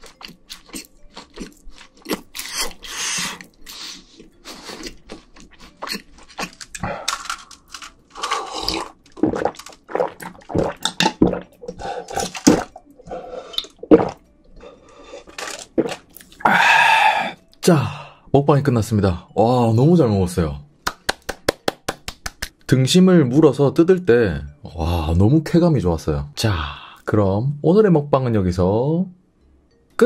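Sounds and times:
wet chewing and smacking: 0.0 - 6.9, 8.0 - 14.2.

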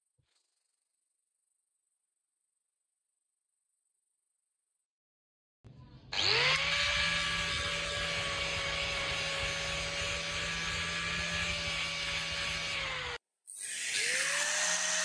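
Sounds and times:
angle grinder whining: 6.1 - 15.0.

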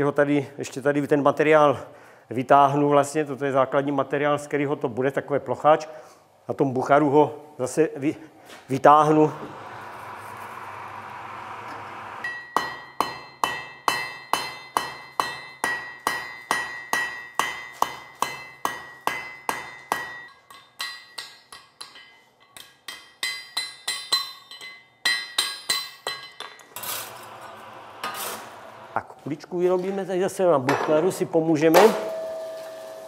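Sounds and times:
hammer striking iron on anvil: 12.2 - 26.6, 31.8 - 33.0.

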